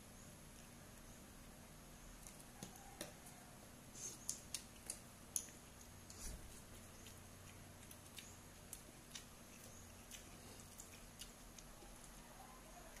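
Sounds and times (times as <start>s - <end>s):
wet eating clicks: 4.2s - 12.2s.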